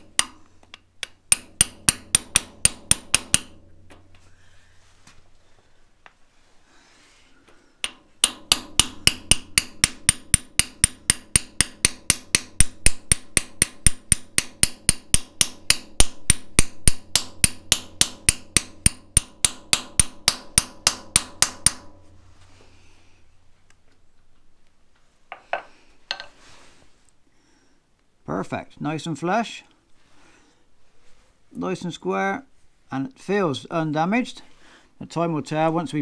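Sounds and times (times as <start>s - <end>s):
hammer tapping metal punch: 0.0s - 4.2s, 7.8s - 22.1s.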